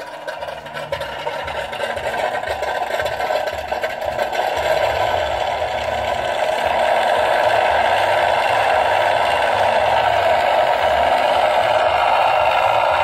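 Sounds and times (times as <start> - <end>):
rattling mechanical drone: 0.0 - 13.0.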